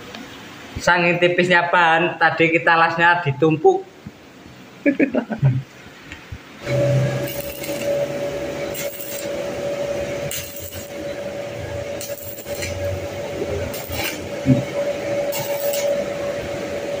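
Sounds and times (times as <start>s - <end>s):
steady hum: 0.0s - 17.0s
welding arc crackling sizzle: 6.1s - 17.0s.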